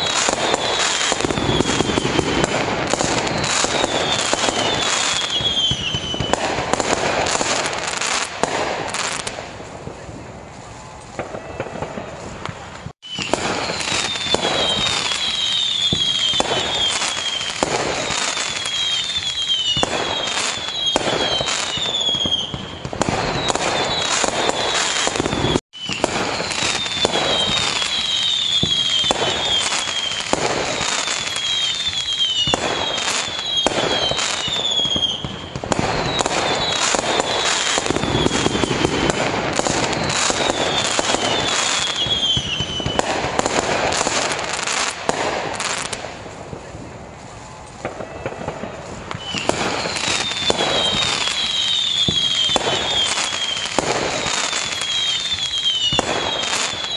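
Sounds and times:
high falling whistles: 0.0 - 6.4, 13.0 - 43.0, 49.2 - 56.9
fireworks bangs and crackling: 0.0 - 56.9.

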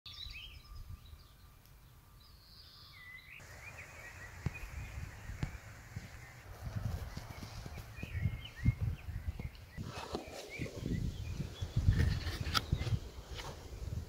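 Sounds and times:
birds chirping: 0.1 - 14.0
wind rumble on microphone: 4.1 - 14.0.

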